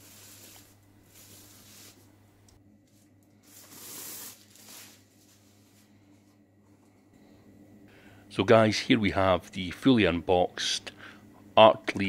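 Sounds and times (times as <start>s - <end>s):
plastic bag rustling: 3.4s - 5.9s.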